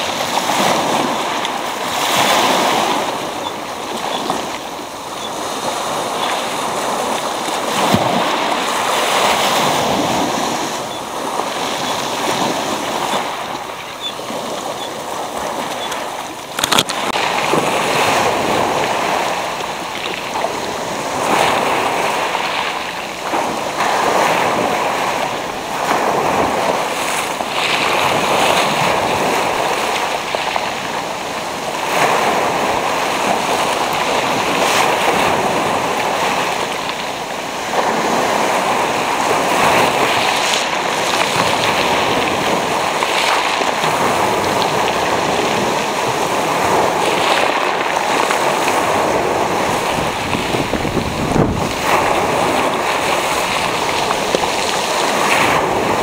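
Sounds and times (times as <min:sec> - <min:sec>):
waves breaking on pebble beach: 0:00.0 - 0:56.0.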